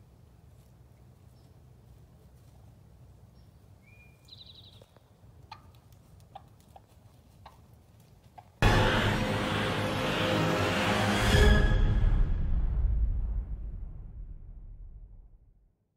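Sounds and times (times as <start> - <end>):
songbird call and trill: 3.3 - 5.0
low rumble: 8.6 - 15.8.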